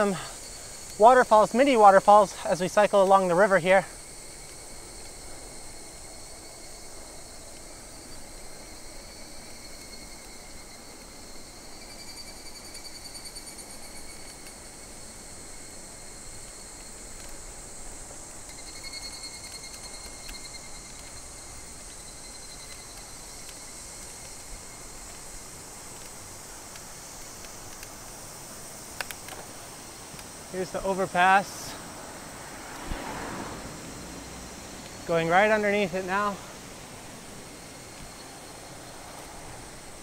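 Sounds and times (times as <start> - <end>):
insects buzzing: 0.0 - 40.0
low rushing noise: 29.4 - 40.0.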